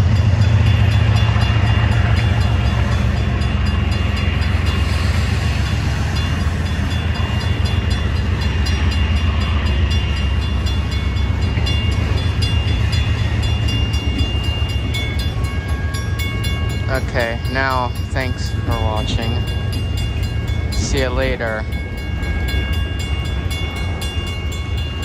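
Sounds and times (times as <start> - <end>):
freight train rumbling past: 0.0 - 25.0.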